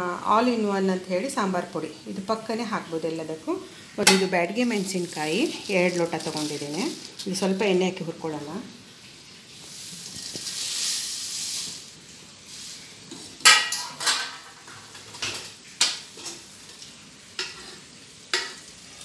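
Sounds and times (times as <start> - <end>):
chillies hissing in hot pan: 0.4 - 19.0
metal cookware clanking: 4.0 - 7.4, 13.1 - 16.8, 17.4 - 18.7.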